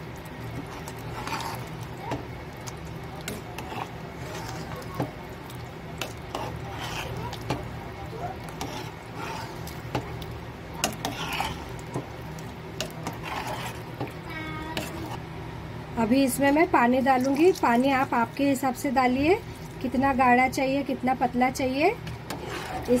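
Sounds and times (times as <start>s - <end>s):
steady low hum: 0.0s - 23.0s
wet churning stew: 0.0s - 23.0s
metal ladle scraping a pot: 0.6s - 2.3s, 3.2s - 5.2s, 6.0s - 7.8s, 8.4s - 10.0s, 10.8s - 12.1s, 12.8s - 14.1s, 14.8s - 15.2s, 22.0s - 23.0s.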